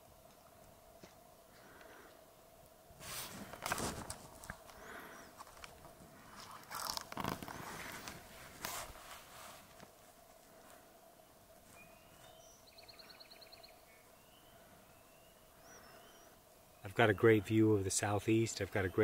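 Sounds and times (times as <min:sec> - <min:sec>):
small birds chirping and trilling: 0:04.8 - 0:05.5, 0:11.7 - 0:19.0.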